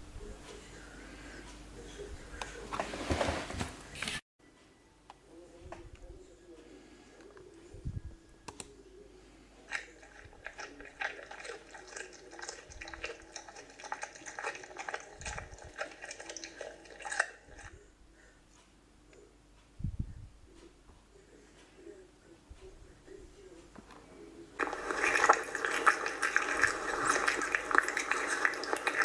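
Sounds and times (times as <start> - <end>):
cat crunching dry kibble: 9.7 - 17.8, 24.6 - 29.0.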